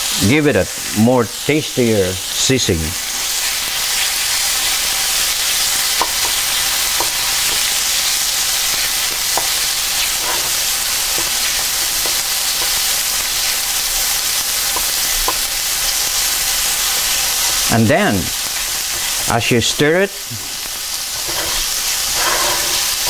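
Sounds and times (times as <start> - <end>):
food sizzling in oil: 0.0 - 23.0
spatula tapping and scraping pan: 6.0 - 7.8, 8.7 - 13.0, 14.7 - 15.6.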